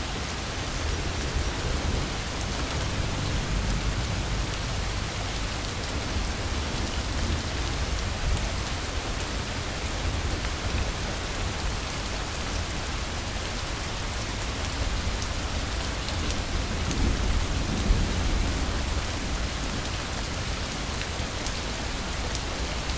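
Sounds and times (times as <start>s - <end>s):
steady rain hiss: 0.0s - 22.9s
low rumble: 1.7s - 6.7s.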